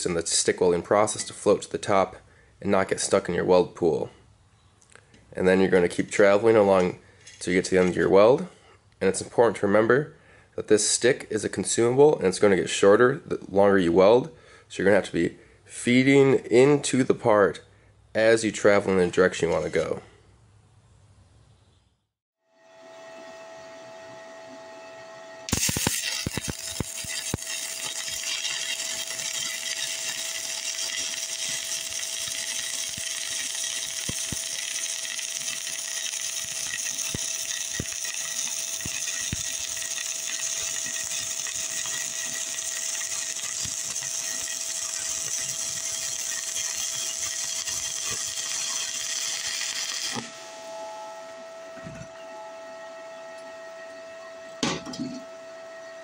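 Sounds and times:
welding arc crackling: 0:25.5 - 0:50.5.

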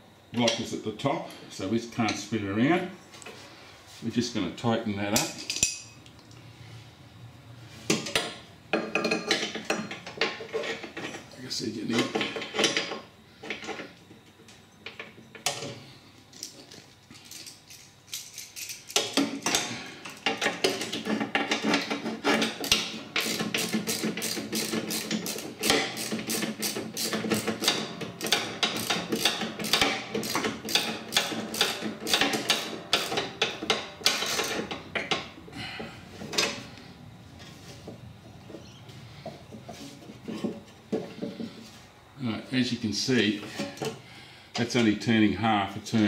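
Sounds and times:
ratchet wrench clicking: 0:17.2 - 0:19.2, 0:22.6 - 0:34.6.

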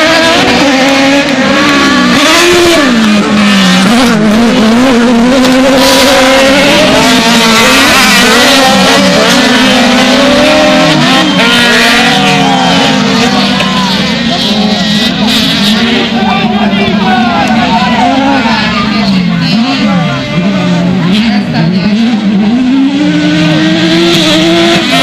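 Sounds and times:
race car engines revving: 0:00.0 - 0:25.0.

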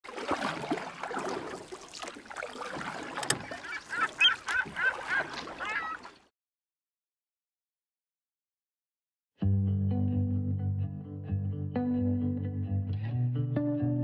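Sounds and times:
flock of birds calling: 0:03.4 - 0:06.1.

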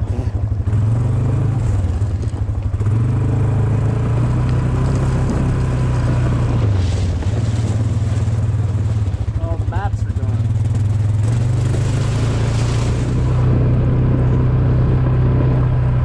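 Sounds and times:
atv engine running: 0:00.0 - 0:16.0.

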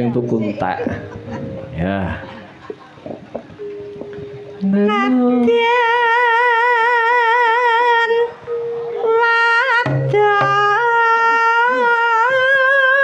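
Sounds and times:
woman singing with vibrato: 0:04.6 - 0:13.0.

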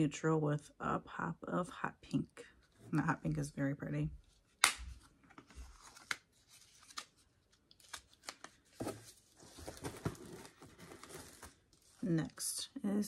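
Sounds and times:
packaging rustling and crinkling: 0:04.4 - 0:12.0.

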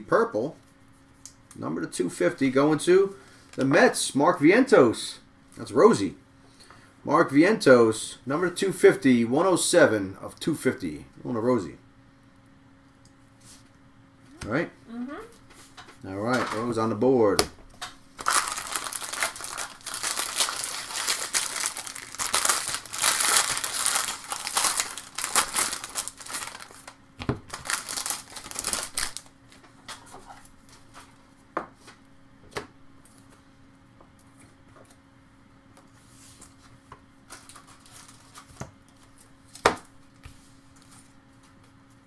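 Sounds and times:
wrapper tearing and crinkling: 0:18.2 - 0:29.3.

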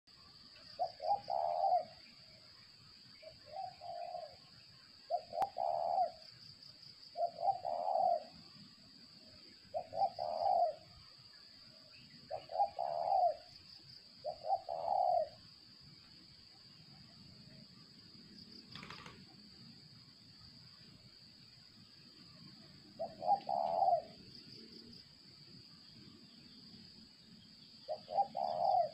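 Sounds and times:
dove cooing: 0:00.8 - 0:02.0, 0:03.2 - 0:04.4, 0:05.1 - 0:06.2, 0:07.2 - 0:08.4, 0:09.7 - 0:11.0, 0:12.3 - 0:13.5, 0:14.2 - 0:15.4, 0:23.0 - 0:24.2, 0:27.9 - 0:28.9.

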